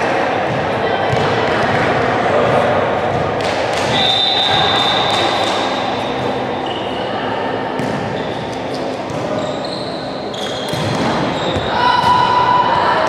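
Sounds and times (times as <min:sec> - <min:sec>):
many voices talking: 0:00.0 - 0:13.0.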